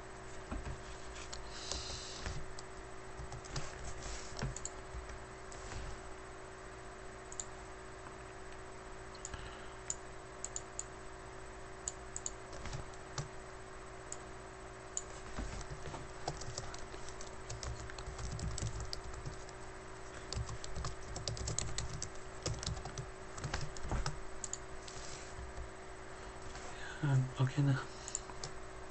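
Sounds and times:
typing on computer keyboard: 15.6 - 19.6, 20.2 - 24.6.

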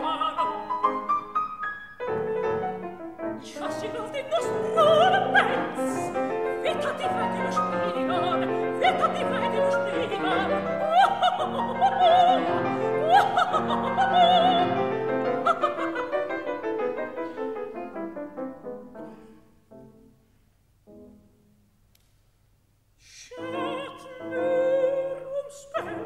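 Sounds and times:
operatic soprano singing: 0.0 - 1.3, 3.2 - 17.5, 23.0 - 26.0
piano accompaniment: 0.0 - 20.2.

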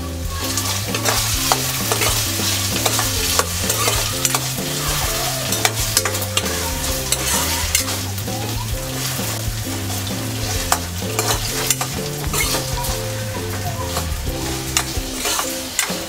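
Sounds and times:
potatoes sizzling in fat: 0.0 - 16.0
spoon scraping and clicking on pan: 0.9 - 4.6.

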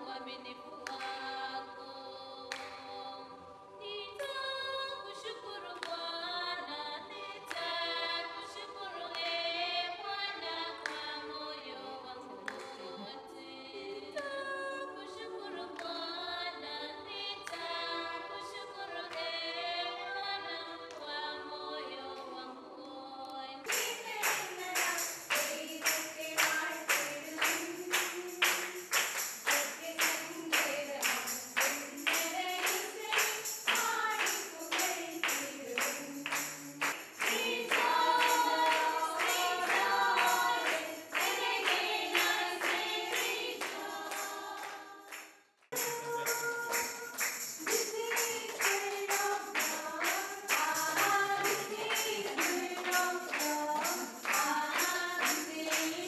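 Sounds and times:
women singing in harmony: 0.0 - 45.2, 45.8 - 56.0
rhythmic hand-clapping: 0.7 - 1.5, 2.5 - 3.0, 5.6 - 6.1, 7.3 - 8.0, 9.0 - 9.5, 10.3 - 11.4, 12.4 - 13.1, 17.4 - 17.8, 23.6 - 56.0.

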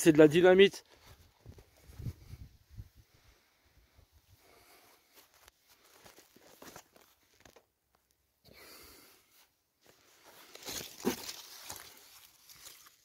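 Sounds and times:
leaves and twigs rustling: 9.8 - 13.0.

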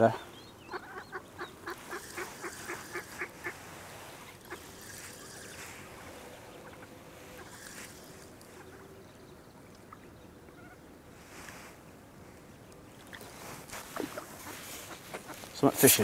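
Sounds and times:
waterfowl honking calls: 0.6 - 8.9, 13.8 - 15.6.

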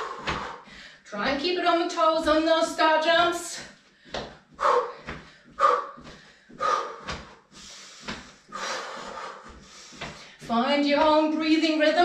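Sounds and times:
feet landing: 0.0 - 0.7, 3.7 - 11.4
heavy exhalations: 0.0 - 1.0, 3.9 - 10.5.

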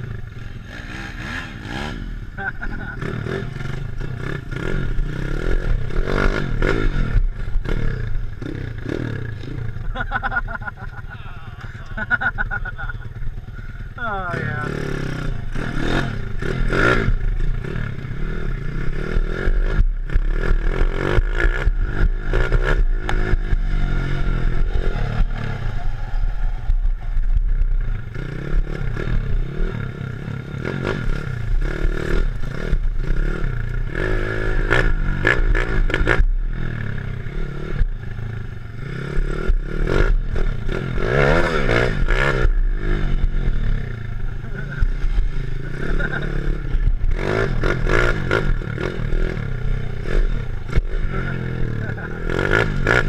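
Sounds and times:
small engine revving: 14.0 - 53.0.

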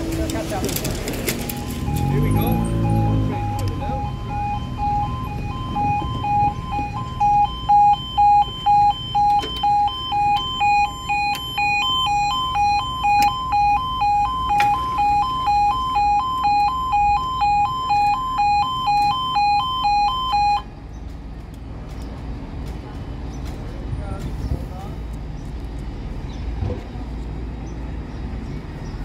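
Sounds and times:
level crossing two-tone warning: 1.2 - 20.7.

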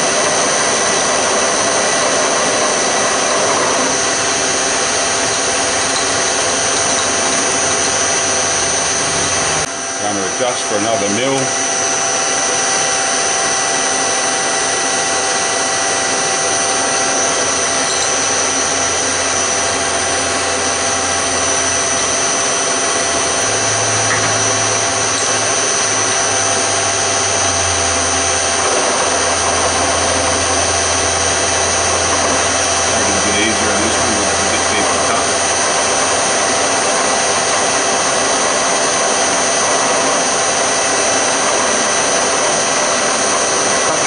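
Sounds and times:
milling spindle high whine: 0.0 - 44.0
low hum: 16.9 - 36.2.

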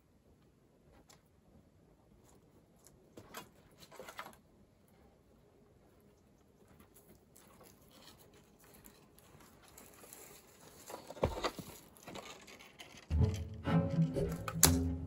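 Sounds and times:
rustling and pattering: 0.4 - 13.1
bowed string background music: 13.1 - 15.0.

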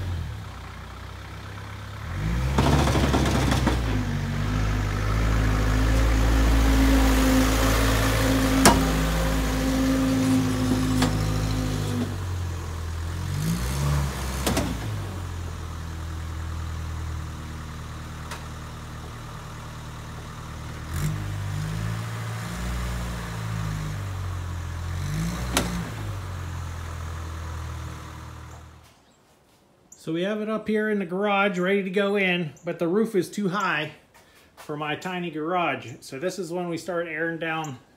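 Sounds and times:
diesel truck engine: 0.0 - 28.9
engine revving: 0.0 - 28.9
sharp knocks from truck: 2.5 - 4.0, 8.6 - 9.0.

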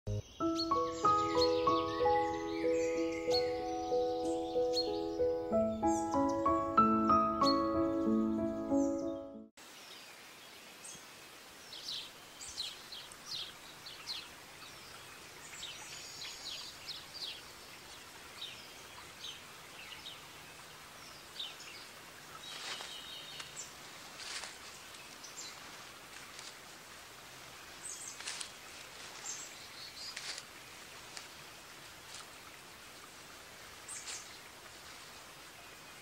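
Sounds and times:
bird chirps and calls: 0.1 - 9.4
steady faint hiss: 9.6 - 36.0.

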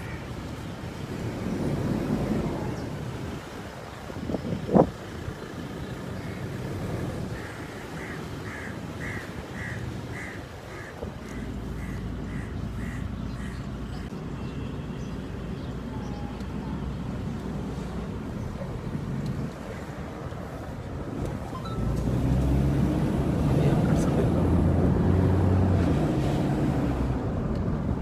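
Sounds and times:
low rumble of vehicles: 0.0 - 28.0
wind on microphone: 0.8 - 5.4
short high tones: 21.4 - 22.0.

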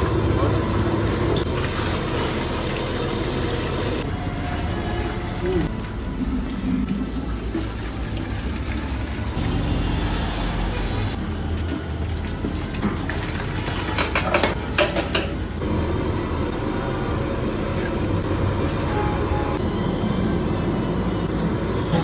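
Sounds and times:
splashing and clattering into pot: 11.6 - 15.4.

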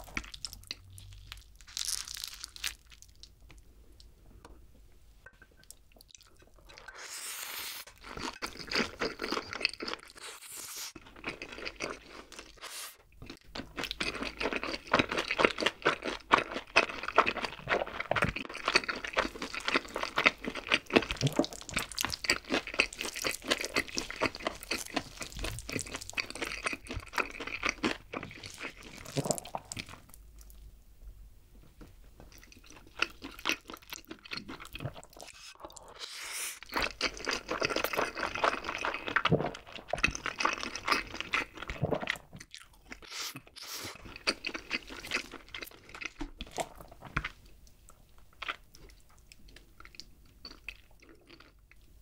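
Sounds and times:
person slurping noodles: 6.8 - 7.9, 35.2 - 36.7
wet chewing: 7.8 - 30.5.

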